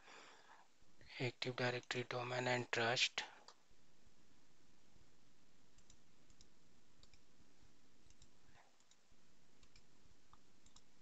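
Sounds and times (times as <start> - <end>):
low steady hiss: 0.0 - 11.0
computer mouse clicks: 5.8 - 7.3, 8.0 - 9.0, 9.6 - 10.9.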